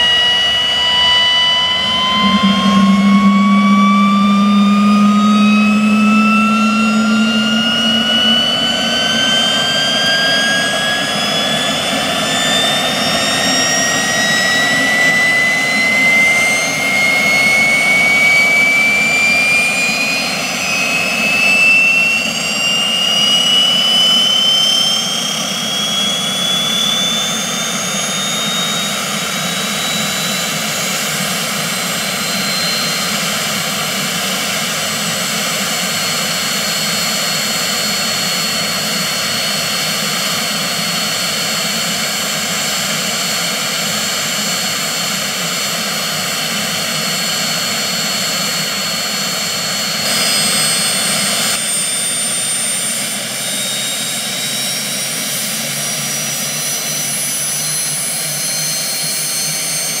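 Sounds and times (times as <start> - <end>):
helicopter turbine whine: 0.0 - 60.0.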